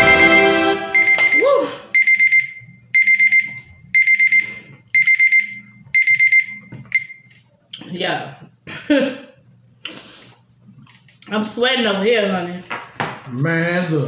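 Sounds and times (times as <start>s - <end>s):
digital timer alarm beeping: 0.0s - 7.3s.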